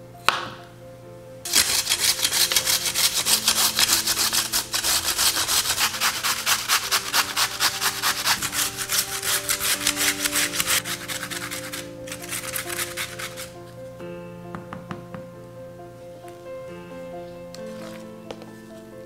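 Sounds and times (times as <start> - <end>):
potato grated on metal grater: 1.5 - 13.6.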